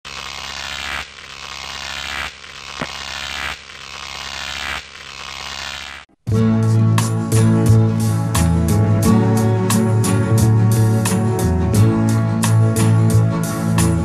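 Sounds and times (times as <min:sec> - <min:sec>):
static-like hiss: 0:00.1 - 0:06.0
click: 0:02.8 - 0:03.0.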